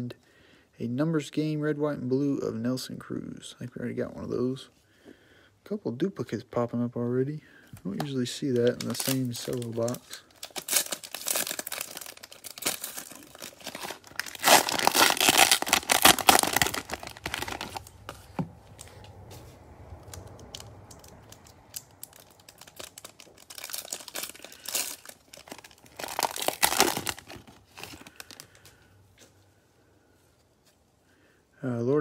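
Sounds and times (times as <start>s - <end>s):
wrapper crinkling and tearing: 8.0s - 19.0s, 20.0s - 28.8s
soft rustling: 17.2s - 20.1s.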